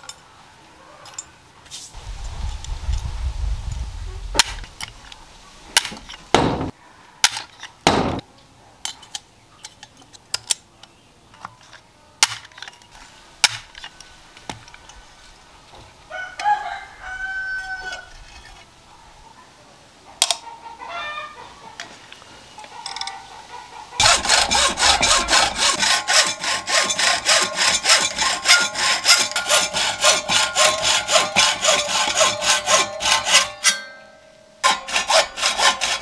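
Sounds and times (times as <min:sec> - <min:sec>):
rooster crowing: 0:16.1 - 0:18.2, 0:20.8 - 0:21.5
metal rails and rivets clicking: 0:22.6 - 0:23.2, 0:24.0 - 0:36.0.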